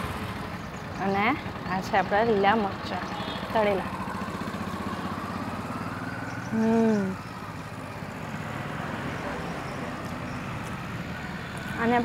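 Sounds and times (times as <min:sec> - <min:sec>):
engine running with low hum: 0:00.0 - 0:12.0.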